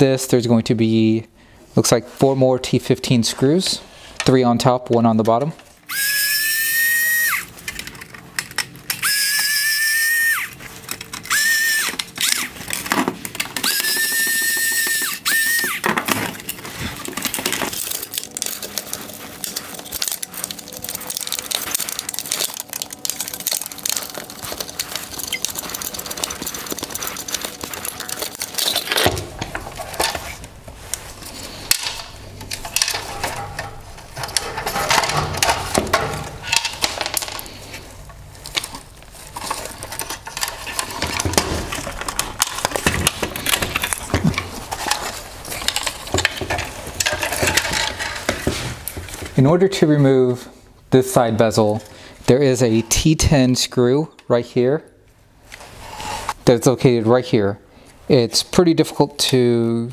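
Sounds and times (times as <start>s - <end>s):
plastic parts clicking and rattling: 4.2s - 49.4s
power screwdriver whining: 5.9s - 7.6s, 8.9s - 12.8s, 13.5s - 16.1s.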